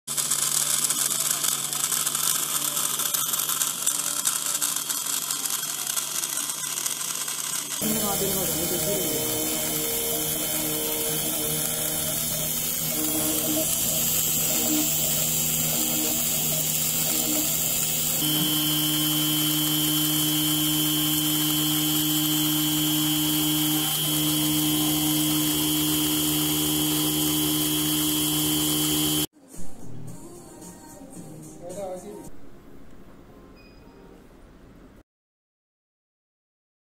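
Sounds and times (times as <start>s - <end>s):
milling spindle whine: 0.2s - 29.3s.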